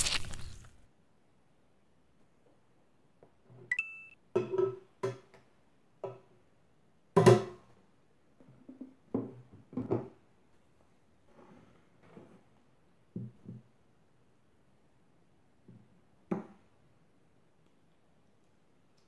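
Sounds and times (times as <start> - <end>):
short high beep: 3.7 - 4.2.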